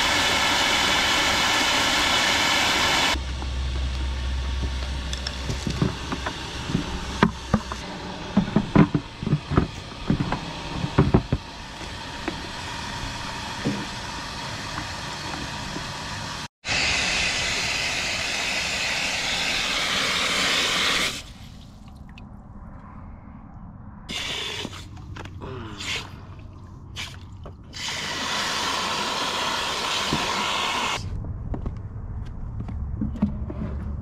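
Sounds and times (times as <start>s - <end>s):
water gushing into trough: 0.0s - 3.2s, 27.0s - 31.0s.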